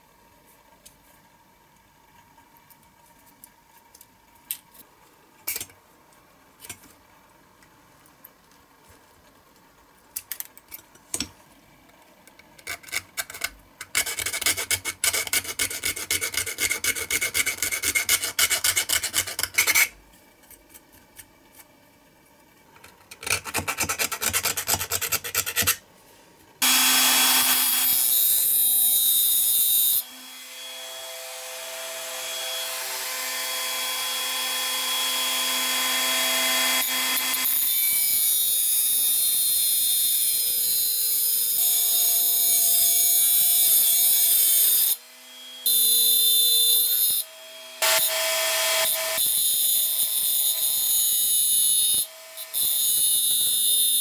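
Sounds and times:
hand file rasping on steel: 0:14.0 - 0:19.9, 0:23.5 - 0:25.8
power tool whining: 0:26.6 - 0:37.7.

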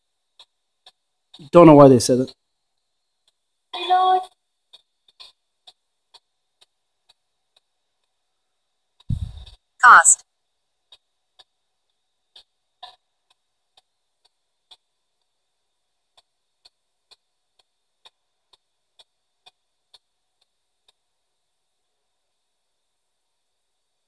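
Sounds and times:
faint irregular radio clicks: 0:00.0 - 0:01.5, 0:02.3 - 0:08.2, 0:08.9 - 0:10.2, 0:10.8 - 0:21.1.

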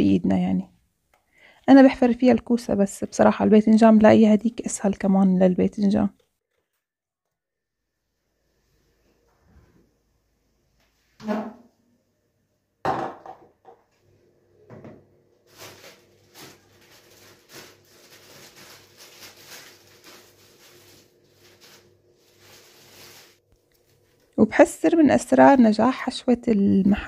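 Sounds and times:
knock: 0:12.9 - 0:13.8
plastic bag crinkling: 0:15.5 - 0:24.3.

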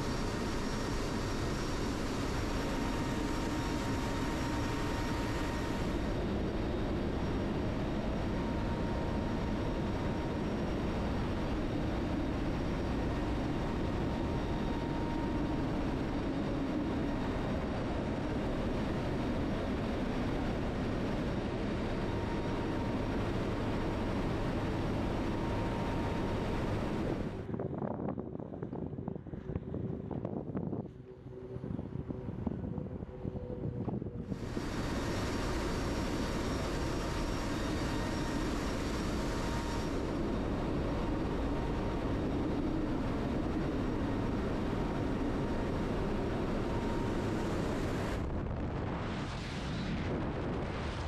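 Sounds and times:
aircraft engine drone: 0:00.0 - 0:51.0
faint steady whine: 0:00.0 - 0:51.0
rushing air: 0:47.1 - 0:51.0.

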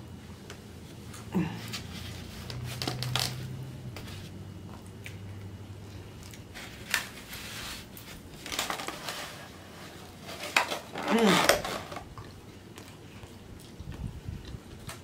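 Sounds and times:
styrofoam box creaking and clacking: 0:02.4 - 0:03.5, 0:08.4 - 0:12.1
chewing fried food: 0:04.5 - 0:07.3, 0:12.0 - 0:15.0.

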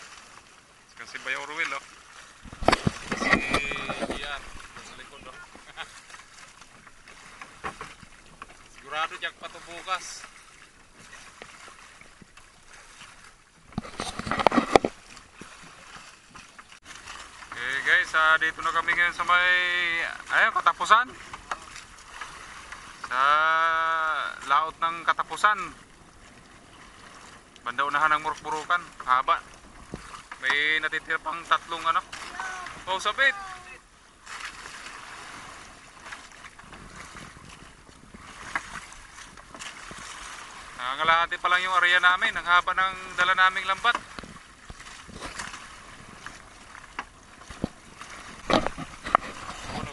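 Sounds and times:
faint wind: 0:00.0 - 0:49.9
sea water splashing along boat hull: 0:00.0 - 0:49.9
wind buffeting microphone: 0:02.4 - 0:05.8, 0:29.4 - 0:30.3, 0:35.0 - 0:40.8, 0:44.0 - 0:49.9
sharp knocks and rustling: 0:02.4 - 0:08.7, 0:10.4 - 0:17.6, 0:43.9 - 0:49.9.

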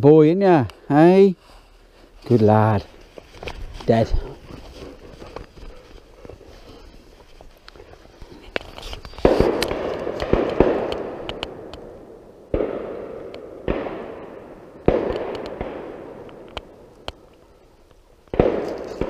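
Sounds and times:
shotgun shots echoing: 0:09.2 - 0:16.8, 0:18.3 - 0:19.0.

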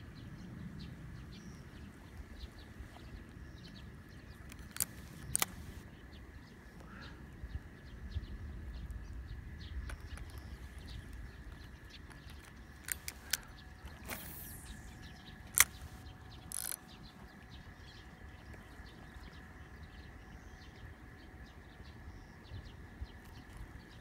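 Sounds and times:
sharp clicks: 0:04.5 - 0:05.8, 0:12.0 - 0:16.9
fishing reel cranking: 0:12.8 - 0:16.8
short falling swish: 0:14.0 - 0:15.0.

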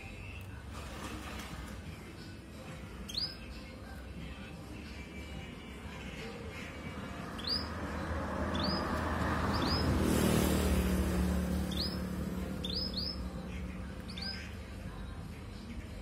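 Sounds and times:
canary chirping: 0:03.0 - 0:04.4, 0:05.8 - 0:15.2.

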